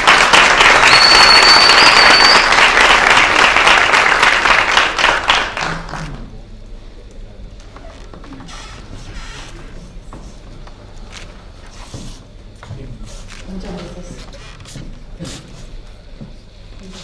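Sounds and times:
audience applauding: 0:00.0 - 0:06.3
thin high whistle-like tone: 0:00.8 - 0:02.7.

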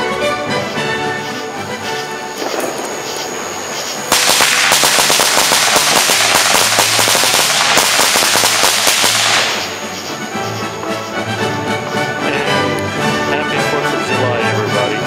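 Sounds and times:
firecrackers cracking: 0:00.8 - 0:11.1.

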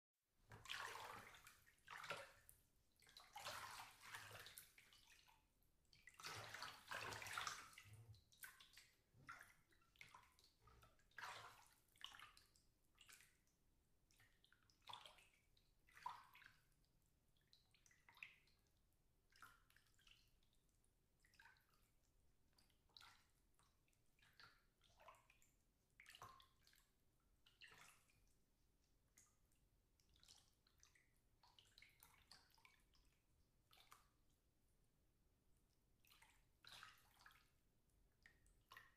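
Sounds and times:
water sloshing in bathtub: 0:00.5 - 0:34.6, 0:35.4 - 0:38.9.

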